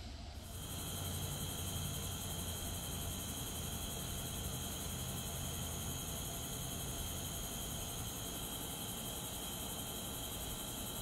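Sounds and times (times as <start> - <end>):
night insects trilling: 0.4 - 11.0.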